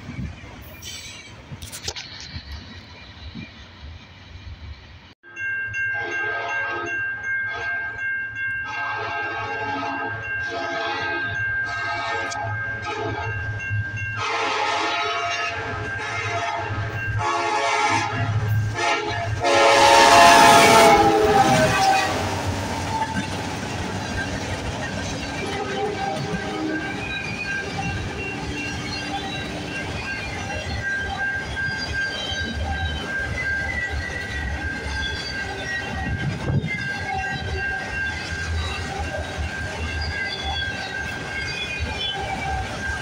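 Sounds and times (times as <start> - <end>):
diesel locomotive passing: 0.0 - 43.0
train horn blasts: 6.0 - 8.0, 8.6 - 13.4, 14.2 - 22.7, 25.4 - 27.0.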